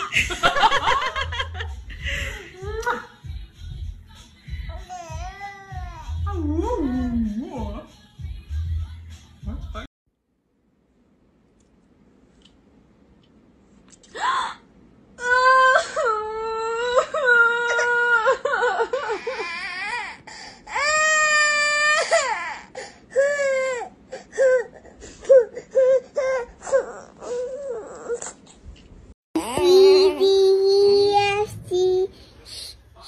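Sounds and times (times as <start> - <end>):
baby crying: 19.0 - 28.4.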